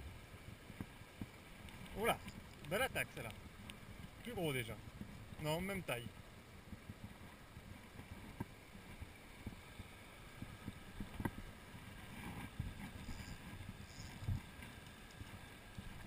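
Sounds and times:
mountain torrent over stones: 0.6 - 6.3
wind on microphone: 6.5 - 16.0.

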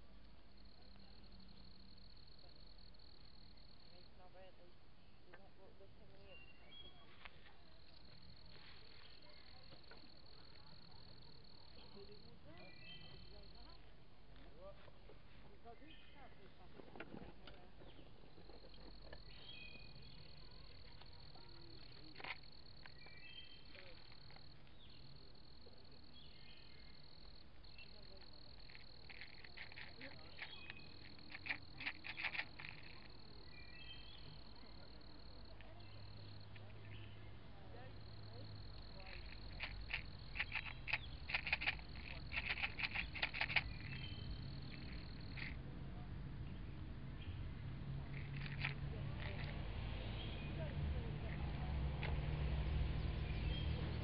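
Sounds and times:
insects trilling: 0.0 - 5.1, 5.7 - 13.9, 18.0 - 45.7, 47.2 - 54.0
short insect chirps: 18.5 - 45.6, 48.0 - 54.0
frog calling: 18.6 - 37.4, 38.0 - 45.6, 48.0 - 49.6.

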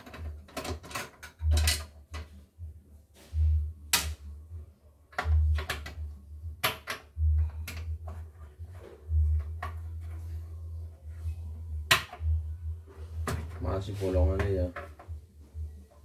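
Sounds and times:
screwdriver and parts clicking: 0.0 - 2.4.

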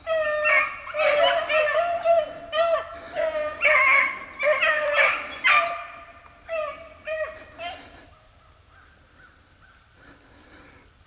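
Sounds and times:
dogs baying: 0.0 - 8.1.

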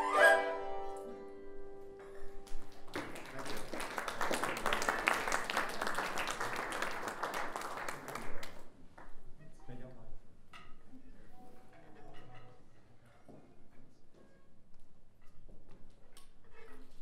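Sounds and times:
traditional string and flute ensemble: 0.0 - 2.3
audience applause: 2.4 - 8.7.

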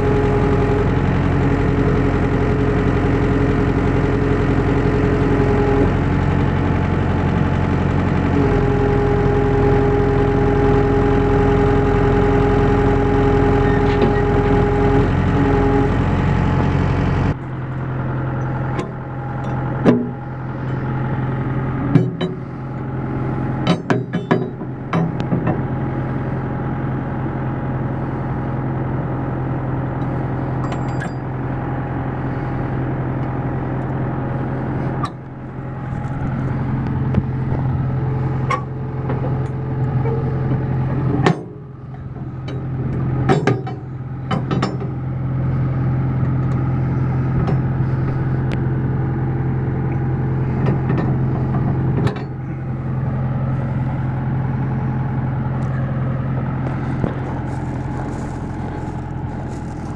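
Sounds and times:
tractor engine idling: 0.0 - 59.9
sharp clicks and knocks: 23.6 - 25.6, 43.3 - 45.0.

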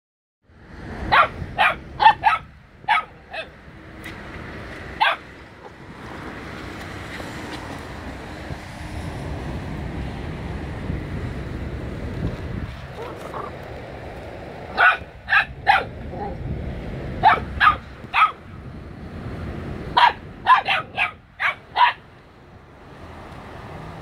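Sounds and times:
puppy yapping: 1.1 - 3.5, 5.0 - 5.2, 14.8 - 16.4, 17.2 - 18.4, 20.0 - 22.0.

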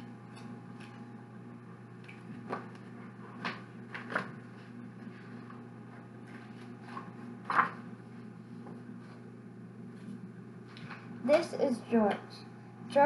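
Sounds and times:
book pages turning: 2.2 - 8.0.

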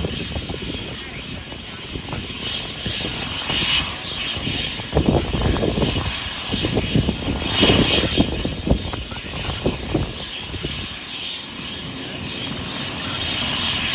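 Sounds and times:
gusty low rumble: 0.0 - 11.0
helicopter engine hiss: 0.0 - 13.9.

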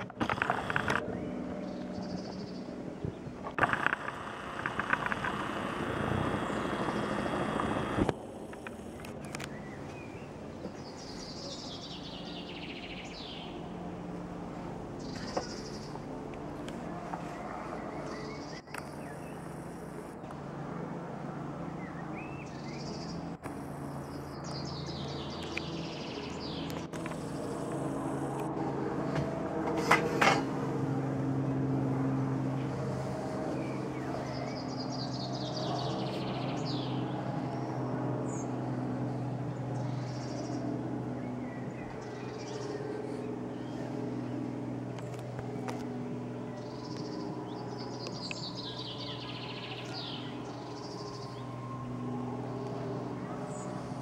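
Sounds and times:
songbirds chirping: 0.0 - 28.5, 31.4 - 54.0
helicopter drone: 0.0 - 54.0.

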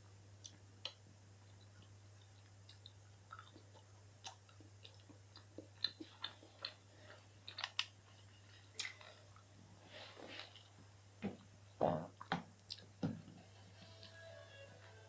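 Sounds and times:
faint low hum: 0.0 - 15.0
person chewing: 0.4 - 8.0.

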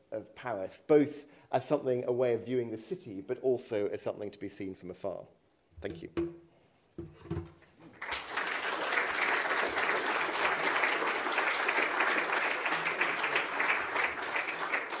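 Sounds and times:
audience applauding: 7.9 - 15.0.

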